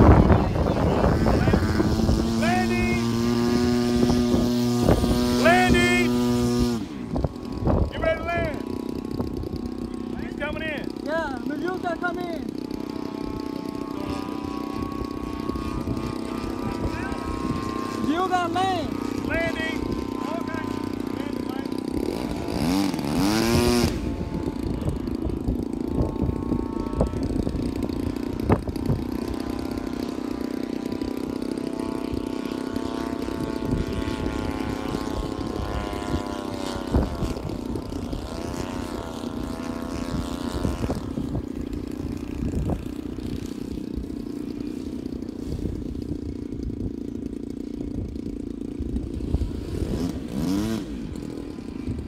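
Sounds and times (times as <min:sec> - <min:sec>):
wind on microphone: 0:00.0 - 0:09.7, 0:13.1 - 0:20.2, 0:21.9 - 0:29.8, 0:33.3 - 0:44.1
model airplane engine: 0:00.0 - 0:52.0.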